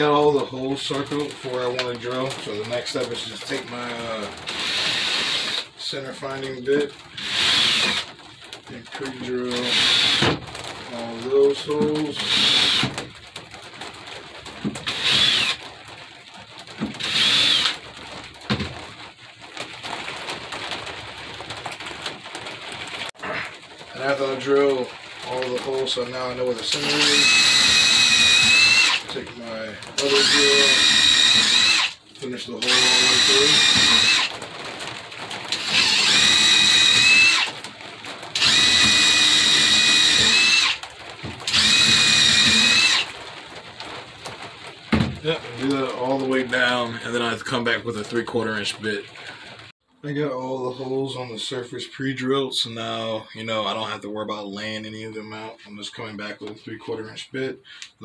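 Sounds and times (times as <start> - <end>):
cordless drill whining: 4.5 - 5.7, 7.2 - 8.1, 9.6 - 10.4, 12.2 - 13.0, 14.8 - 15.6, 17.0 - 17.8, 26.7 - 29.2, 30.0 - 32.0, 32.6 - 34.3, 35.5 - 37.6, 38.4 - 43.1.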